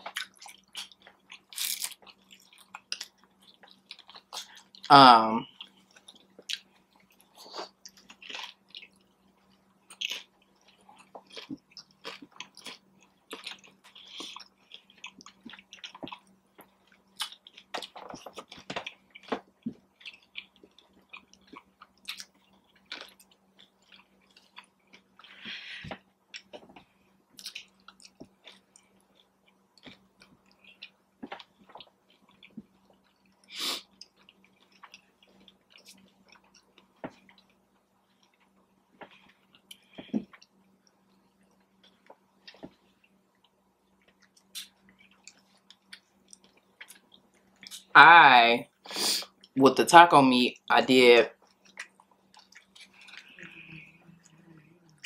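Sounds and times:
chewing crunchy taco shell: 0.0s - 47.9s, 51.3s - 55.0s
wet mouth sounds: 51.7s - 55.0s.

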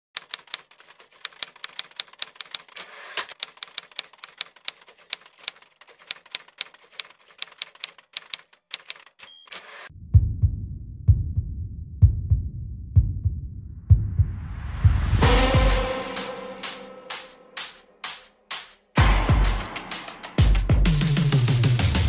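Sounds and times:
typewriter keys clacking: 0.2s - 9.9s
typewriter bell ding: 8.2s - 9.9s.

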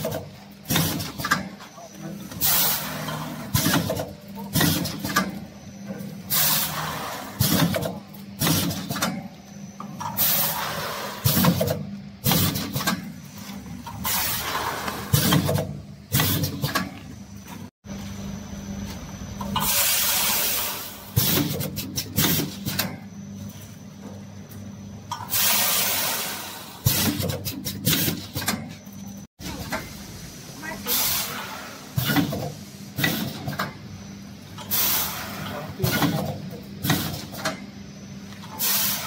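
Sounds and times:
compressed air hiss: 25.3s - 27.0s, 30.1s - 33.0s, 34.7s - 35.6s, 38.6s - 39.0s.

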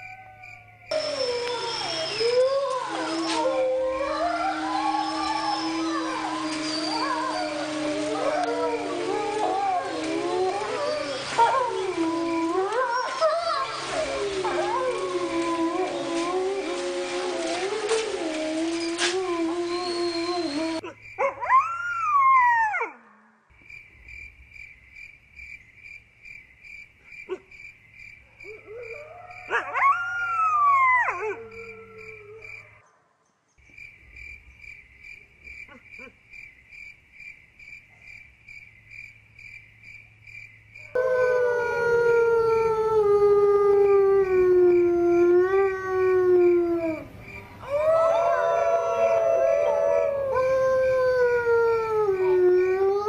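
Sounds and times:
wolves howling: 0.0s - 23.0s, 28.5s - 32.8s, 41.0s - 53.0s.

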